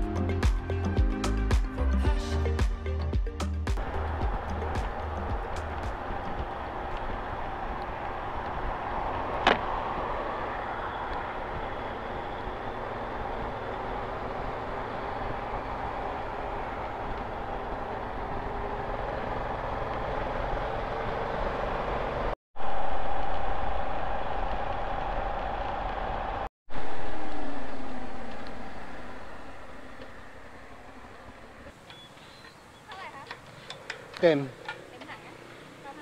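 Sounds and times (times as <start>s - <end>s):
motorcycle engine riding: 3.8s - 22.8s, 26.8s - 36.0s.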